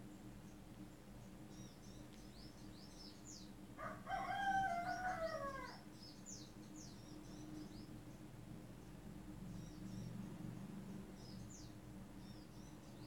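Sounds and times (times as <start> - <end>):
small birds chirping: 0.0 - 3.6, 4.8 - 13.0
rooster crowing: 3.8 - 5.8.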